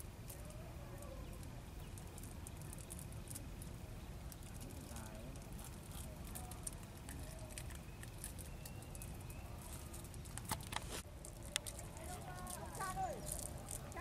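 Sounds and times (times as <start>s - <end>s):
crackling clicks: 4.3s - 14.0s.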